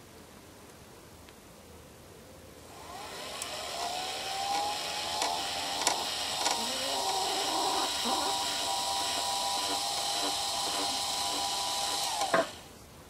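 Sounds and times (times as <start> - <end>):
small motor whining: 2.7 - 12.7.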